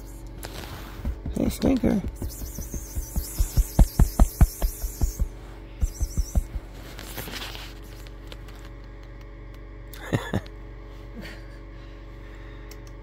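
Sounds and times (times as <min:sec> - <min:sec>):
low steady hum: 0:00.0 - 0:13.0
soft thumps: 0:01.0 - 0:06.8.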